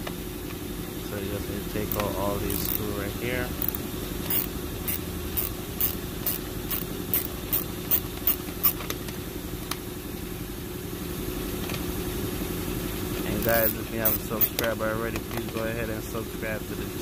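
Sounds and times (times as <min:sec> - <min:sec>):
steady low hum: 0:00.0 - 0:17.0
screwdriver ratchet clicks: 0:01.9 - 0:02.8, 0:03.6 - 0:08.8, 0:13.4 - 0:14.7.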